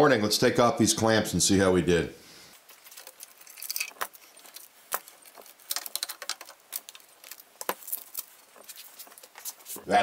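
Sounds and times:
paper rustling: 2.6s - 10.0s
metal clamps clicking and rattling: 2.9s - 7.0s.

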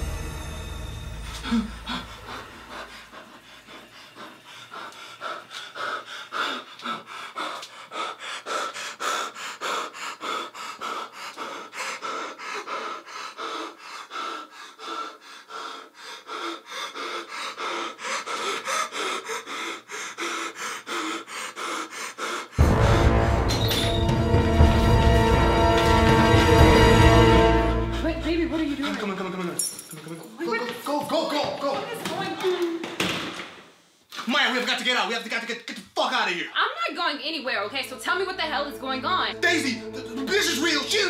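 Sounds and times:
man panting hard: 1.3s - 22.7s.

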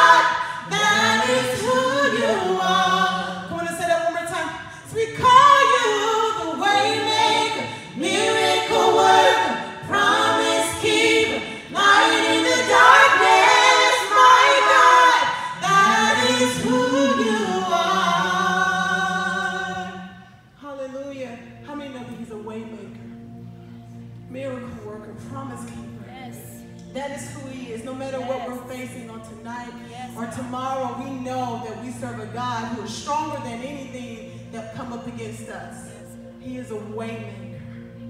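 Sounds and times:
female vocal quartet singing: 0.0s - 20.6s.

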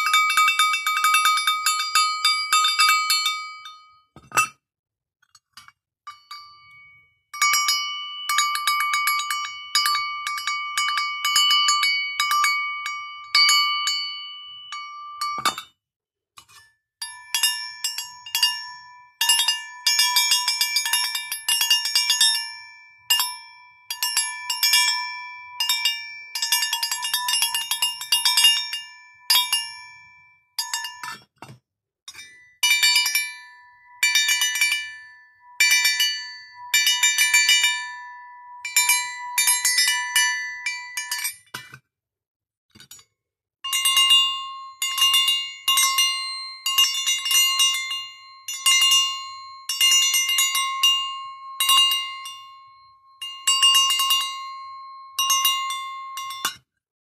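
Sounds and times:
metal bells shaken: 38.6s - 41.4s, 43.7s - 56.6s.

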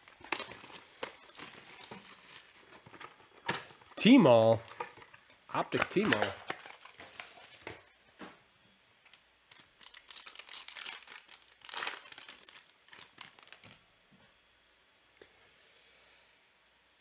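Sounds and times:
foil pack tearing and crinkling: 0.0s - 7.9s, 9.1s - 13.8s.

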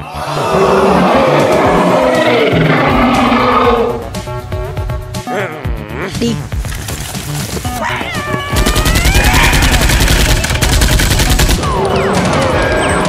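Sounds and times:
high rising animal-like cry: 0.0s - 4.1s
rapid gunfire sound effect: 8.6s - 13.0s.

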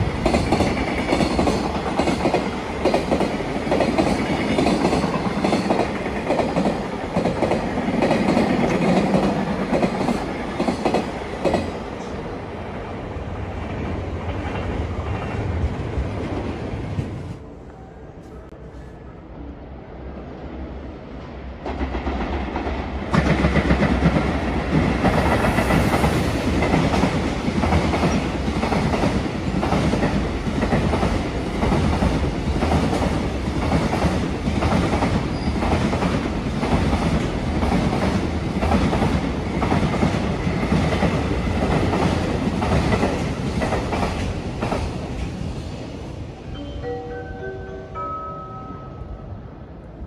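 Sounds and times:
clickety-clack over rail joints: 0.0s - 12.1s, 21.6s - 45.4s
train wheels rumbling on rails: 0.0s - 17.4s, 21.0s - 46.4s.

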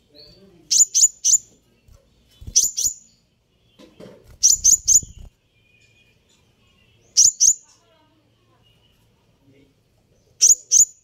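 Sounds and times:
bird giving high chirps: 0.2s - 1.6s, 2.3s - 3.2s, 4.3s - 6.2s, 7.0s - 7.7s, 10.4s - 11.0s.

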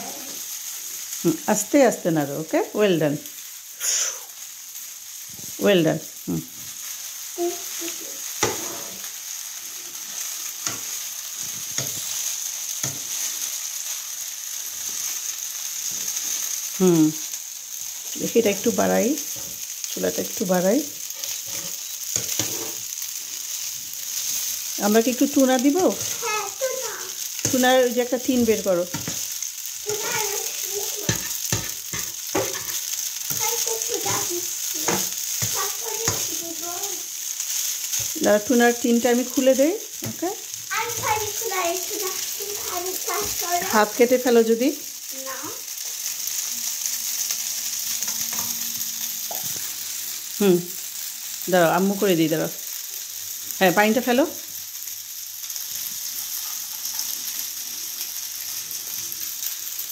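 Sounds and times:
pasta sizzling in a frying pan: 0.0s - 59.9s
spatula knocking and scraping pan: 8.4s - 9.1s, 10.6s - 12.2s, 12.8s - 13.3s, 21.0s - 22.8s, 27.4s - 29.3s, 31.0s - 36.4s, 39.9s - 41.5s, 48.0s - 48.6s.

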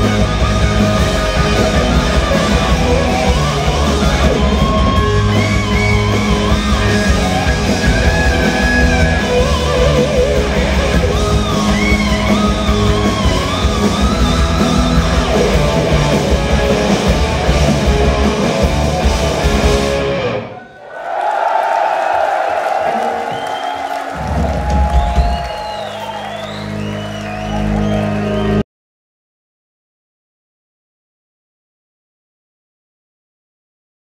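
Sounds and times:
hard rock band playing live: 0.0s - 20.6s, 24.1s - 28.6s.

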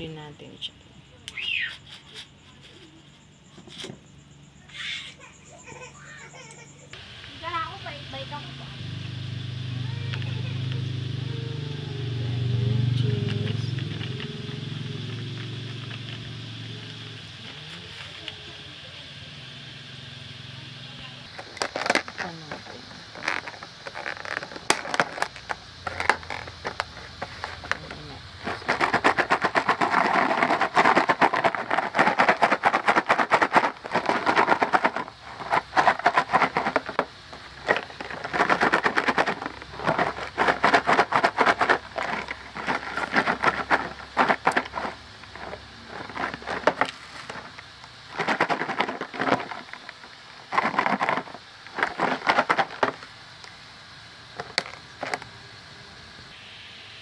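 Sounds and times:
fries rattling in plastic container: 21.3s - 53.1s.

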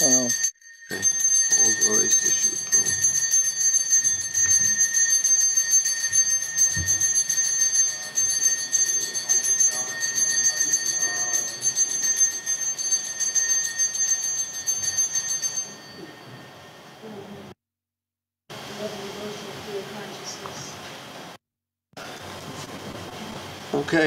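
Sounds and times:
small hand bell ringing: 0.0s - 17.2s.

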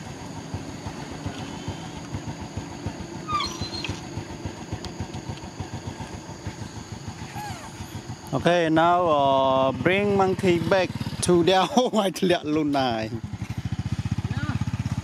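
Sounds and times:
small motorcycle engine idling: 0.0s - 15.0s
monkey squealing: 3.2s - 4.0s, 7.2s - 8.0s.

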